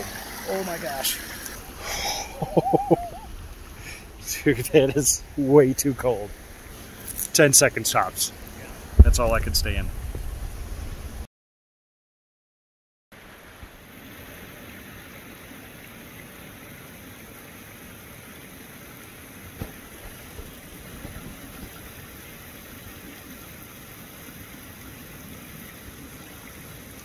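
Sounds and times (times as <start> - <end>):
mountain stream rushing: 0.0 - 11.3, 13.2 - 27.0.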